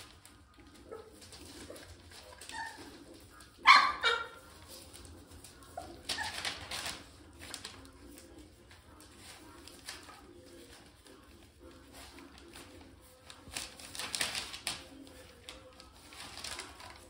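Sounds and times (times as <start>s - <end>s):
puppy yelping: 0.8s - 4.5s, 5.8s - 6.8s.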